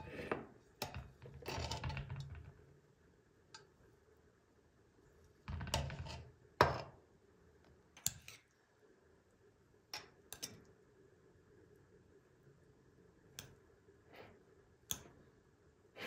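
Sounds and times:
metal spatula scraping ceramic bowl: 0:00.0 - 0:02.0.

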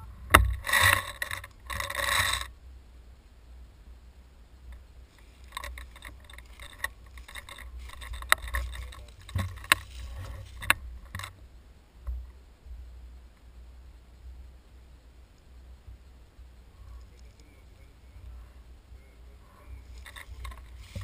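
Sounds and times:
dry leaves rustling and crackling: 0:05.1 - 0:11.4, 0:19.7 - 0:21.0.

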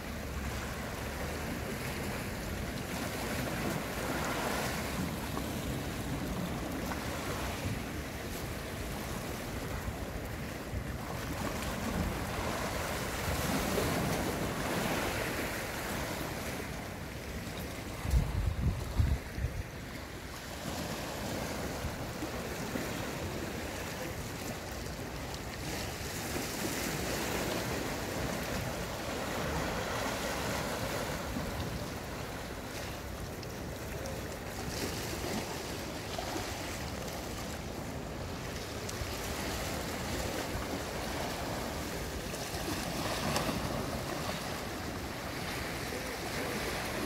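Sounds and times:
wind rumble on microphone: 0:00.0 - 0:24.1
waves lapping against seawall: 0:00.0 - 0:47.0.

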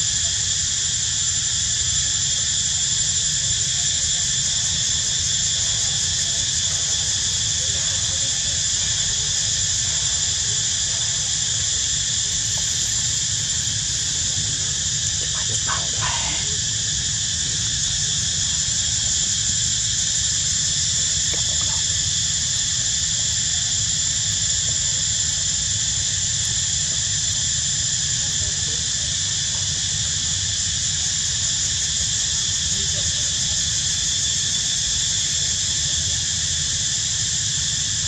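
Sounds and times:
insect chorus droning: 0:00.0 - 0:38.0.

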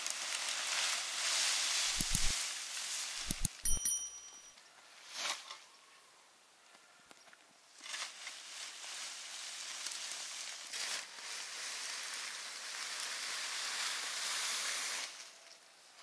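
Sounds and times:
dry leaves rustling: 0:00.0 - 0:03.3, 0:07.8 - 0:16.0.

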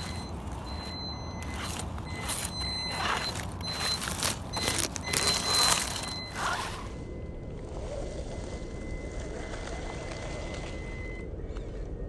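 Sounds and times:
toy car electric motor whining: 0:00.0 - 0:07.0
tyres crunching over dry dirt: 0:00.0 - 0:10.8.

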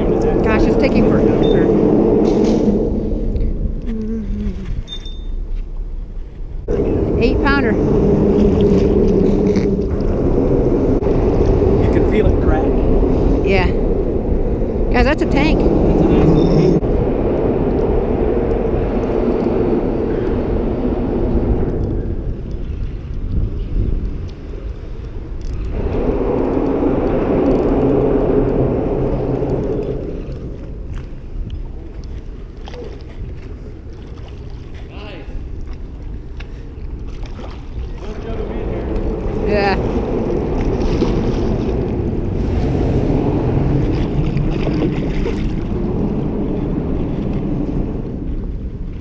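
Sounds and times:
vehicle humming over grid bridge: 0:00.0 - 0:32.5
water splashing: 0:00.0 - 0:49.0
wind on microphone: 0:00.0 - 0:49.0.

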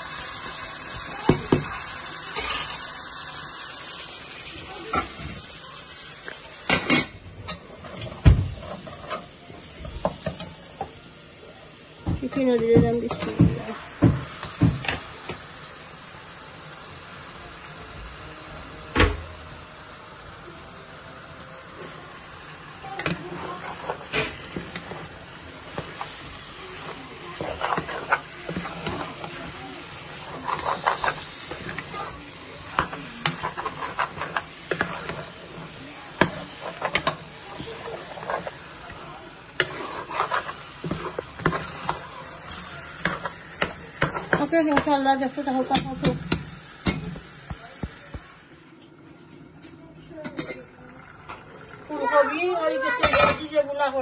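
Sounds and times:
chicken sizzling: 0:00.0 - 0:54.0
metal spoon scraping metal pot: 0:39.6 - 0:42.0.

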